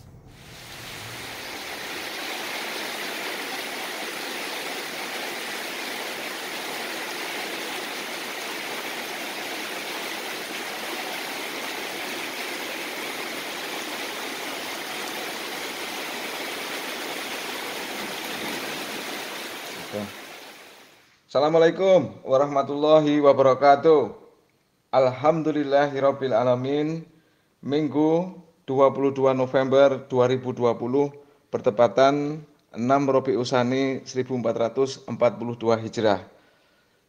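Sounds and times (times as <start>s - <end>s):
heavy rain: 0.0s - 21.0s.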